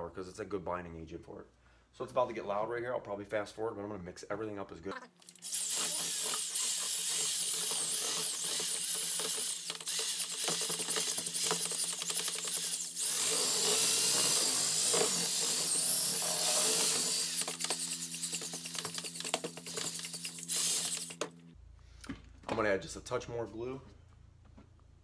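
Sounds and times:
power drill mixing wet clay: 5.2 - 21.3.

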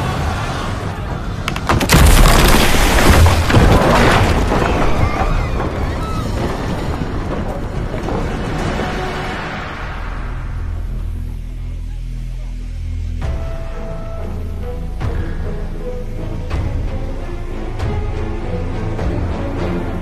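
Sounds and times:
ship hull crashing into dock: 1.7 - 9.4.

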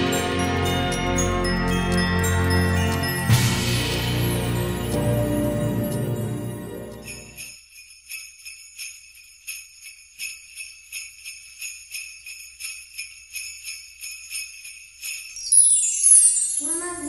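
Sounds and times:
background music: 0.0 - 7.5
jingle bells shaken: 0.0 - 17.0.

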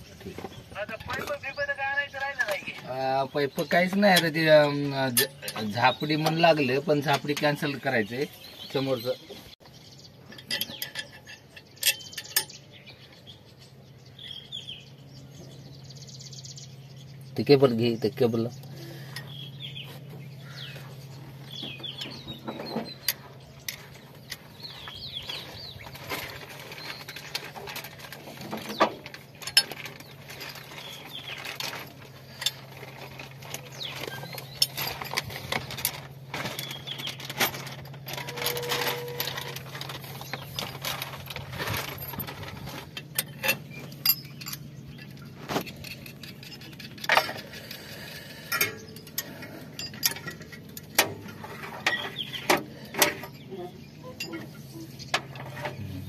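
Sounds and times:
metallic clicks and clinks: 41.8 - 52.2.

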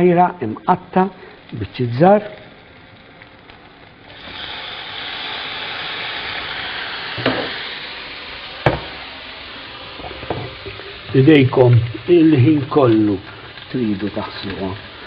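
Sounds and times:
food sizzling in hot oil: 0.0 - 15.0
sharp knocks: 8.7 - 8.9.

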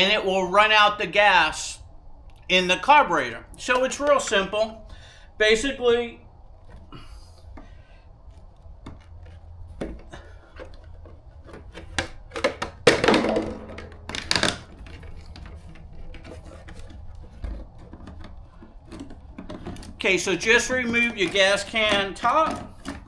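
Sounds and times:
scraping rustles: 6.5 - 12.8, 13.8 - 23.0.

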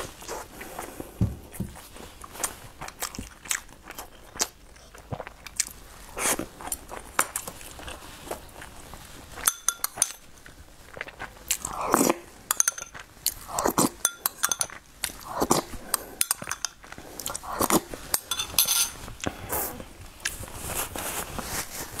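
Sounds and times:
eating sounds: 2.2 - 18.3
glass clinking: 9.4 - 10.2, 12.5 - 13.0, 14.0 - 14.8, 18.2 - 19.0
metal spoon scraping glass bowl: 9.4 - 10.2, 14.0 - 14.7, 18.2 - 19.0
paper napkin rustling: 20.4 - 22.0.

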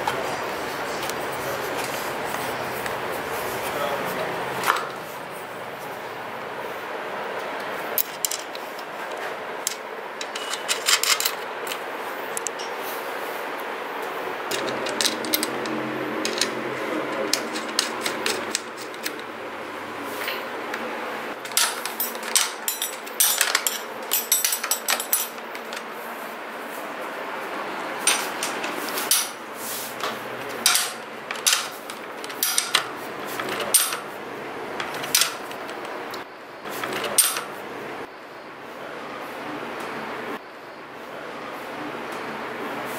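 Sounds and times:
metal spanner clinking: 8.0 - 11.8, 14.5 - 19.3, 21.4 - 25.8, 30.6 - 34.1.

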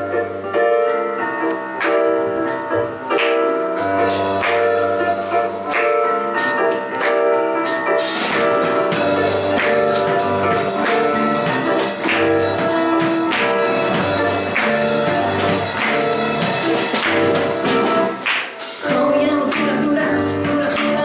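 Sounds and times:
drum kit with cymbal hits: 0.9 - 21.0
bass guitar line: 3.8 - 7.0, 7.6 - 18.2.

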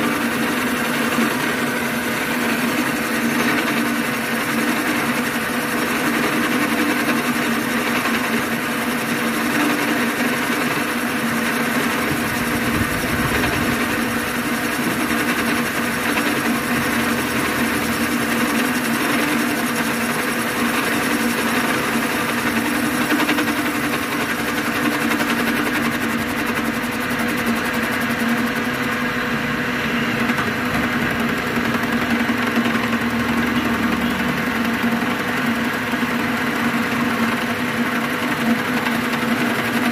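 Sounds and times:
boring machine motor hum: 0.0 - 39.9.

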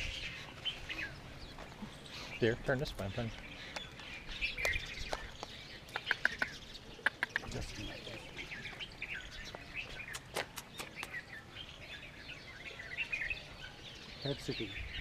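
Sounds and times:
small birds chirping: 0.0 - 15.0
sharp clicks: 10.0 - 11.2.

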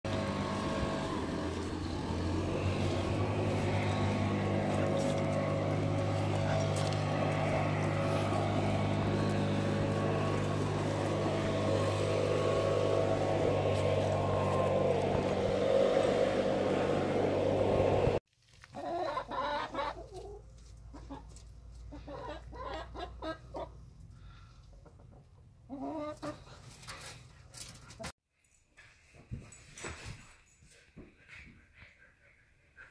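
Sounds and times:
steady low hum: 0.1 - 18.2
chickens clucking: 18.7 - 23.8, 24.7 - 26.5.

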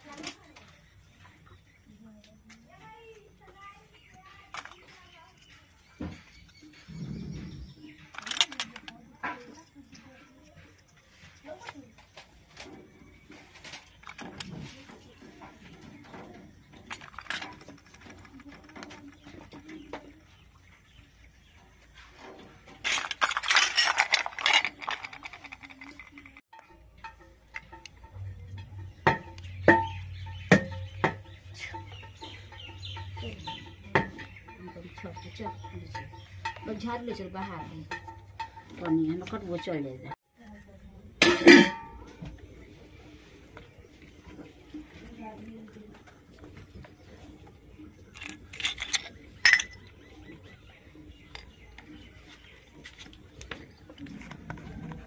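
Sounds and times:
toy stove clacks: 8.1 - 9.4, 22.8 - 29.8
toy metal wok clinking: 22.8 - 40.2, 41.2 - 42.0, 48.1 - 49.9.

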